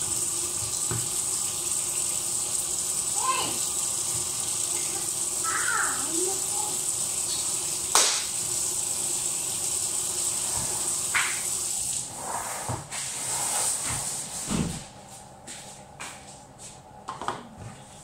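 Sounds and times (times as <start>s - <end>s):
tap water running into sink: 0.0s - 12.1s.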